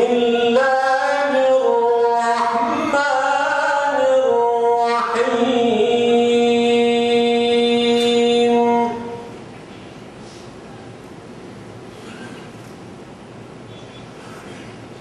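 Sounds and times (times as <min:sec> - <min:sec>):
man reciting melodically: 0:00.0 - 0:09.3.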